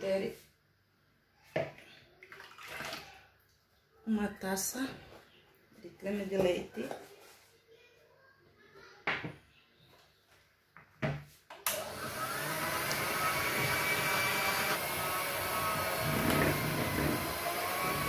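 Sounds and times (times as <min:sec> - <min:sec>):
hand mixer whipping cream: 0:11.7 - 0:18.0.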